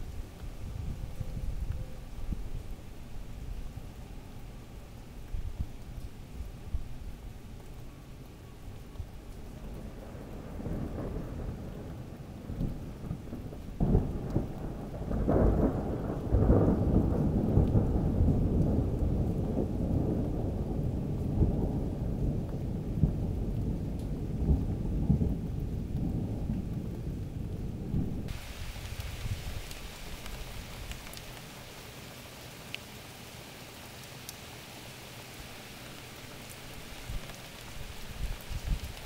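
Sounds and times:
thunder crack and rumble: 0:09.6 - 0:31.2
rain hissing: 0:22.3 - 0:39.0.

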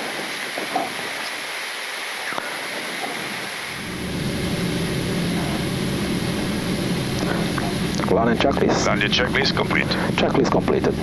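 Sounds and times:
aircraft cockpit air and engine noise: 0:02.2 - 0:11.0.

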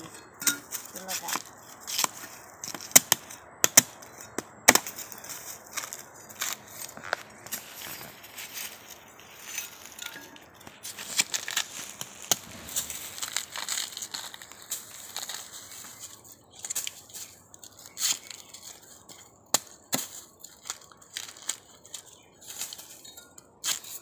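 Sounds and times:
bamboo sheaths tearing: 0:10.9 - 0:16.0.

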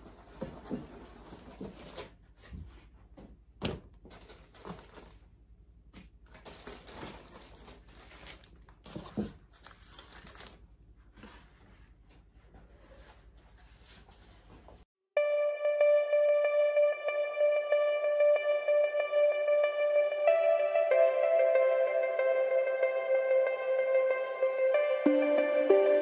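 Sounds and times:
plastic bags crinkling: 0:04.1 - 0:05.3, 0:06.2 - 0:10.7.

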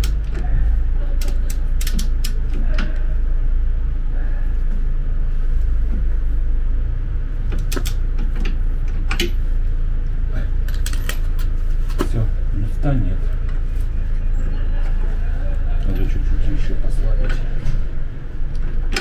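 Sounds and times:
steady low hum: 0:00.0 - 0:19.0
metallic clicks and knocks: 0:07.5 - 0:09.4.

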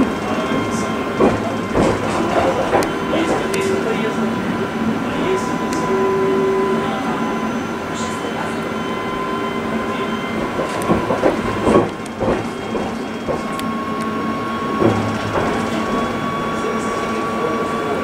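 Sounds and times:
wheels clunking over points: 0:00.0 - 0:03.8
tram rolling on track: 0:00.0 - 0:18.0.

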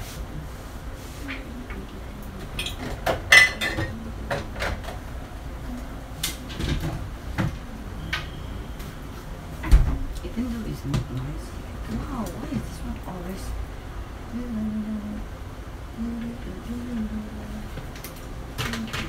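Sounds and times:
dishes and pans clinking: 0:02.5 - 0:04.9.

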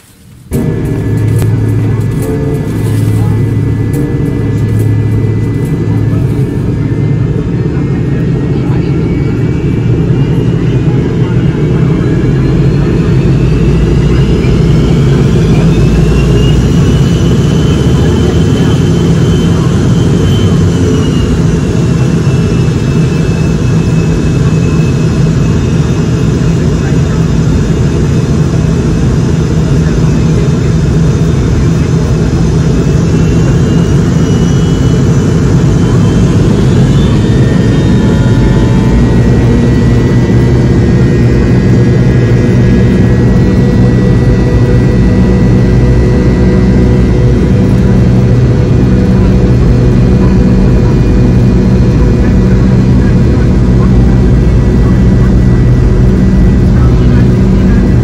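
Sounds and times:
engine whine rising in pitch: 0:00.0 - 0:58.0
jet engines spooling up: 0:00.0 - 0:58.0
low engine rumble: 0:00.0 - 0:58.0.

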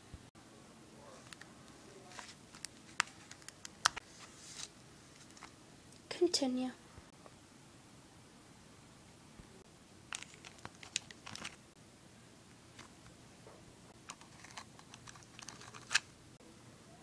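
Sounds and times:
small clicks and crinkly scrapes: 0:01.2 - 0:05.6, 0:10.1 - 0:11.6, 0:13.9 - 0:16.1.

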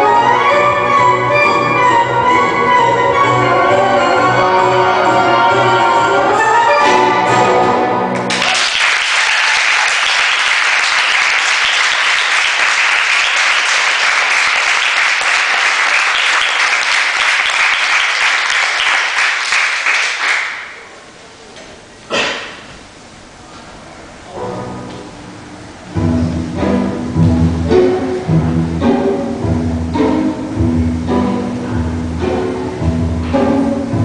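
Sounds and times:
audience applauding: 0:08.2 - 0:20.9.

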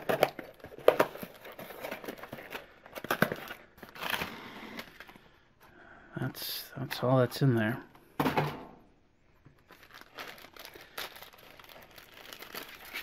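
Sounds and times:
plastic bag crinkling: 0:09.6 - 0:13.0.

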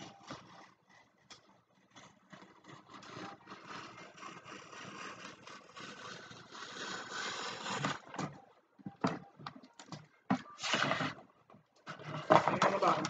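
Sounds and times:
scissors cutting paper: 0:00.0 - 0:08.1.

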